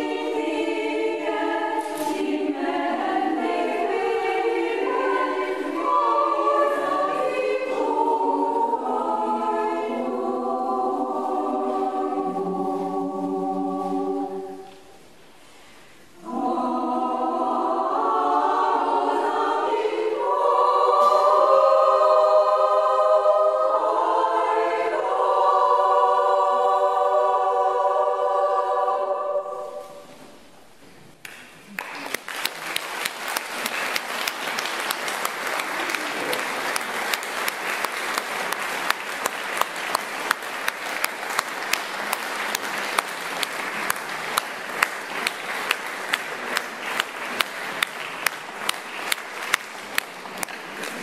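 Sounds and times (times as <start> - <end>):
women's choir singing chord: 0.0 - 15.0, 16.2 - 30.4
audience clapping in unison: 31.2 - 51.0.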